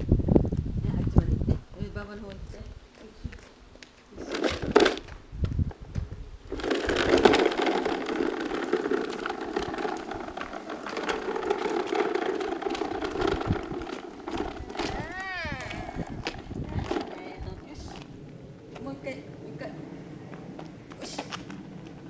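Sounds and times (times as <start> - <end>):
toy truck wheels rattling on asphalt: 4.2 - 5.2, 6.4 - 18.1, 21.0 - 22.0.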